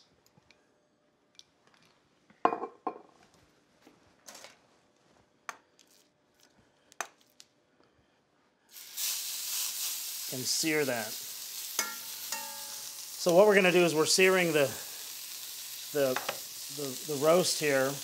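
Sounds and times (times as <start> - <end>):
meat sizzling in hot oil: 8.7 - 18.0
cookware and utensils clicking: 11.8 - 12.7.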